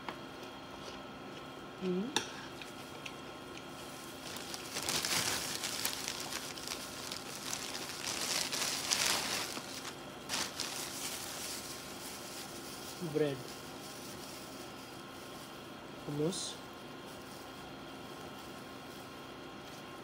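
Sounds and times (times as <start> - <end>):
person humming: 1.8 - 2.2
plastic bag rustling: 3.8 - 16.2, 17.0 - 19.8.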